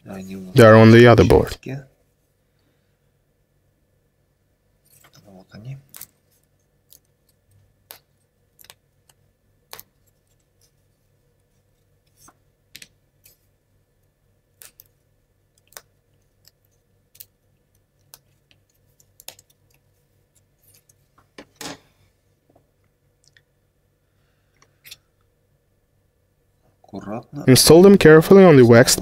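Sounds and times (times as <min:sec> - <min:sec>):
plywood sheets clicking and tapping: 0:06.9 - 0:10.8, 0:14.6 - 0:21.5.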